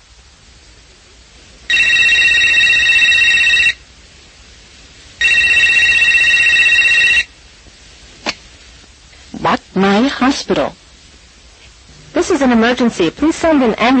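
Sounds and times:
telephone ringing: 1.7s - 3.8s, 5.2s - 7.3s.

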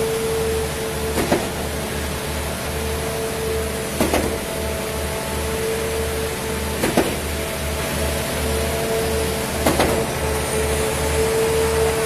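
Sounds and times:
concrete pump engine drone: 0.0s - 12.0s
sharp clunk: 6.8s - 7.2s, 9.6s - 10.1s.

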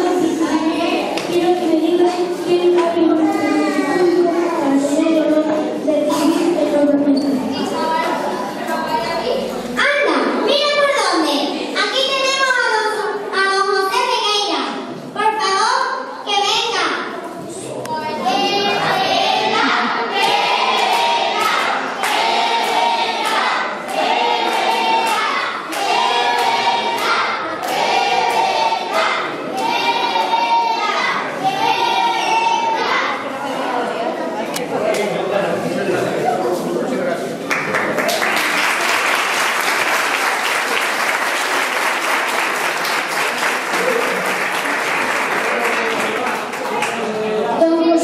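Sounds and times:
children chanting in unison: 18.1s - 34.0s
children applauding: 37.5s - 47.1s.

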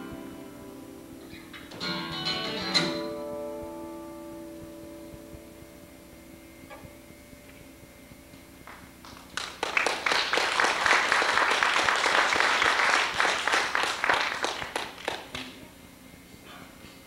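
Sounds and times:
guitar chord: 0.0s - 8.9s
audience applauding: 8.6s - 15.7s.

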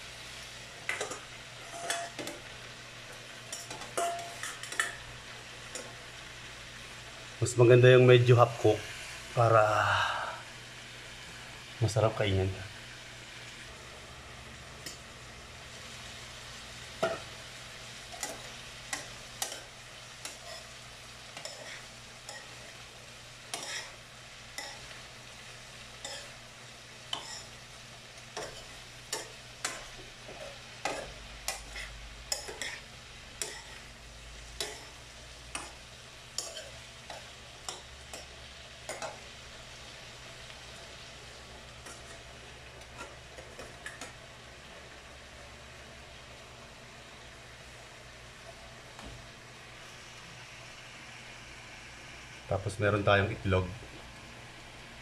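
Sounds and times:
food sizzling in a frying pan: 0.0s - 55.0s
spatula scraping and knocking pan: 28.3s - 32.8s.

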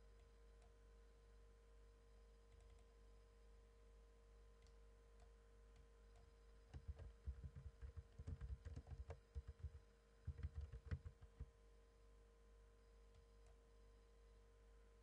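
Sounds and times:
typing on a keyboard: 2.5s - 2.9s, 6.2s - 11.5s.

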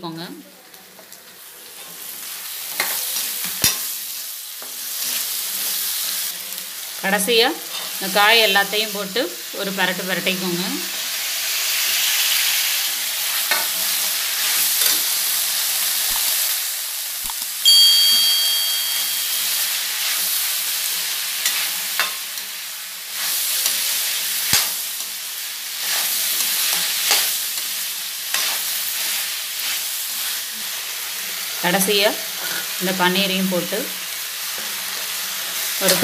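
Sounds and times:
vegetables sizzling in hot oil: 0.0s - 36.0s
high steady tone: 17.6s - 20.0s.

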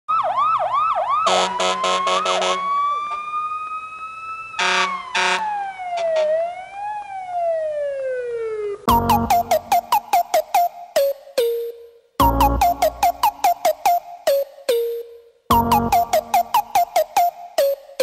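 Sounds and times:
short siren blasts: 0.1s - 14.2s
electronic siren yelp and wail: 0.1s - 17.9s.

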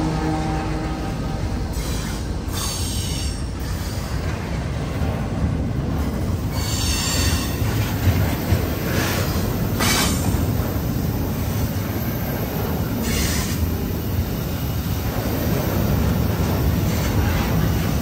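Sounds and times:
freight train wheels rumbling: 0.0s - 18.0s.

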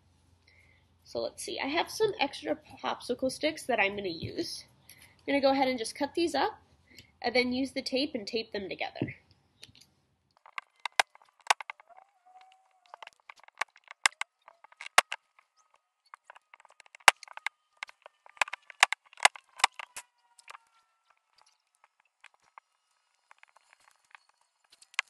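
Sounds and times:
scissors snapping wooden sticks: 10.5s - 11.8s.

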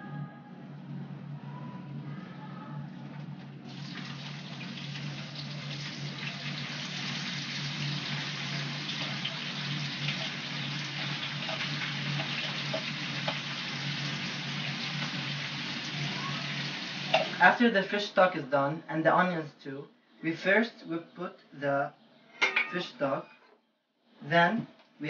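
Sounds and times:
steady low hum: 0.0s - 6.7s
onions sizzling in frying pan: 3.7s - 17.4s.

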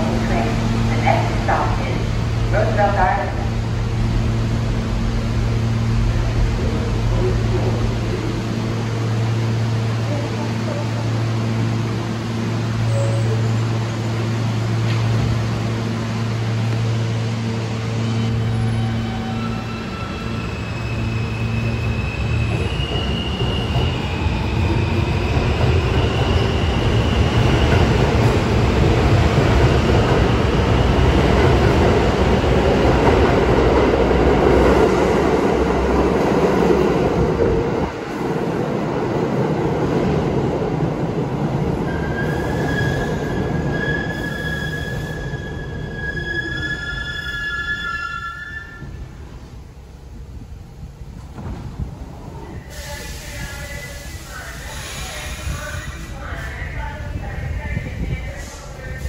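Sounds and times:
subway train rumbling: 0.0s - 59.0s
high-pitched wheel squeal: 41.9s - 49.0s.

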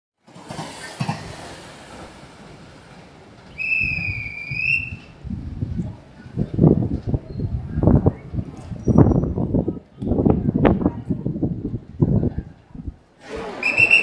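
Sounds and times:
low rumbling: 1.5s - 13.9s
high-pitched whistle blast: 3.5s - 5.1s, 13.6s - 14.0s.

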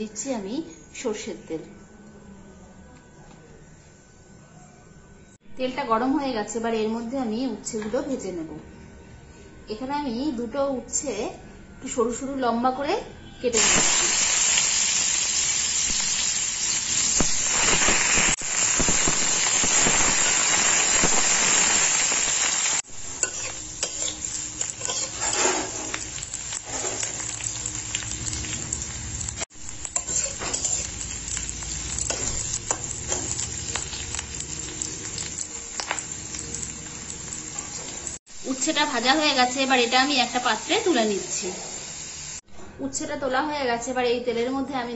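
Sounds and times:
vegetables sizzling in hot oil: 13.5s - 42.4s
spatula scraping a pan: 23.2s - 27.3s, 29.9s - 31.0s.

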